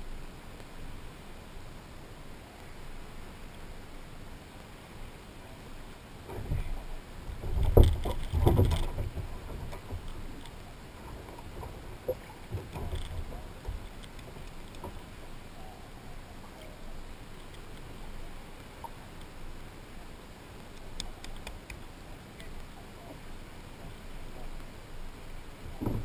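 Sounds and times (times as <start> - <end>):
steady hiss: 0.0 - 26.0
bumps and knocks on plastic kayak: 6.3 - 10.1, 25.7 - 26.0.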